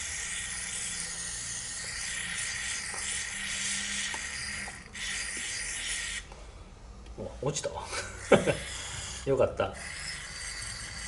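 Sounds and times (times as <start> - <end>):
aerosol spray hissing: 0.0 - 6.3, 8.0 - 11.0.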